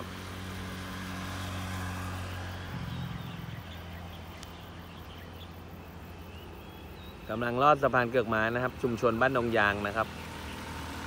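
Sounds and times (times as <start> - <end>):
low engine hum: 0.0 - 7.3
faint outdoor rush: 0.0 - 11.0.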